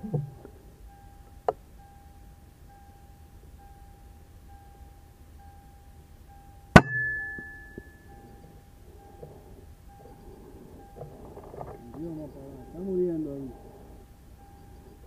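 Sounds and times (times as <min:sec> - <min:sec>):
air rifle shot with metallic ring: 0:06.8 - 0:08.0.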